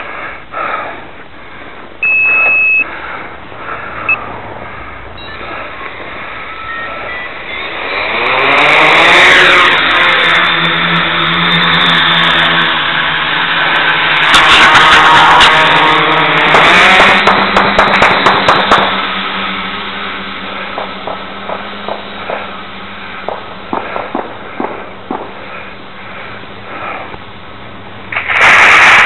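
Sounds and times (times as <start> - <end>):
drone motors and propellers humming: 0.0 - 29.0
single steady beep: 2.0 - 2.9, 5.2 - 5.5.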